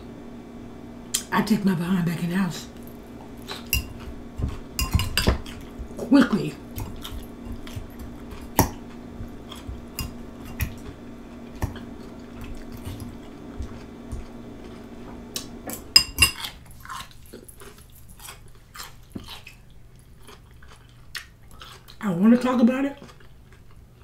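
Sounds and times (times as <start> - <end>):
steady low hum: 0.0 - 24.0
chewing: 2.8 - 15.5, 16.3 - 24.0
fork clinking on glass bowl: 3.4 - 4.1, 4.8 - 5.6, 9.5 - 10.8.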